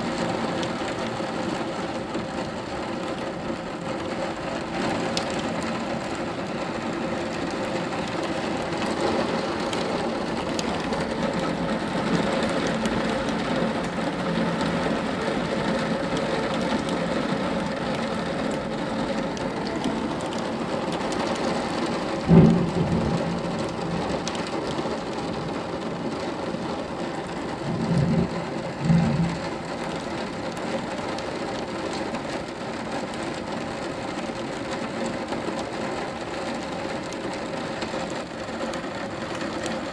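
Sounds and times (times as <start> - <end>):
torrential rain pouring: 0.0 - 39.9
low thumps: 22.3 - 23.8.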